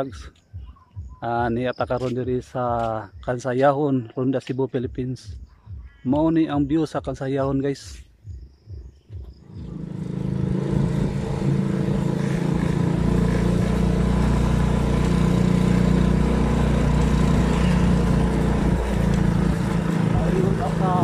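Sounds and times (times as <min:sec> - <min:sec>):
road and wind noise: 0:08.6 - 0:21.0
small motorcycle engine running: 0:09.4 - 0:21.0.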